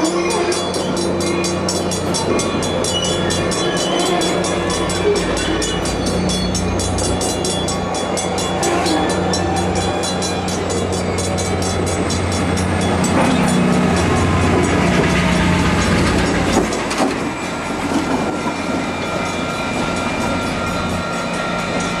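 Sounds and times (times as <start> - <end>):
diesel locomotive engine hum: 0.0 - 22.0
train wheels clicking over rail joints: 0.0 - 22.0.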